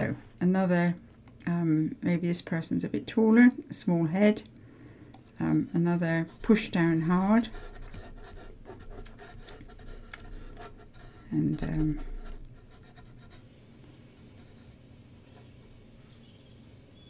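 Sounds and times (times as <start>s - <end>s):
paintbrush scratching on board: 5.3s - 13.5s, 14.1s - 15.6s.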